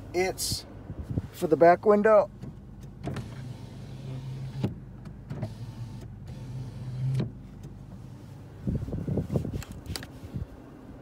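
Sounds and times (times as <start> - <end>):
electric window motor humming: 2.6 - 8.2
brief rustle: 7.6 - 10.4.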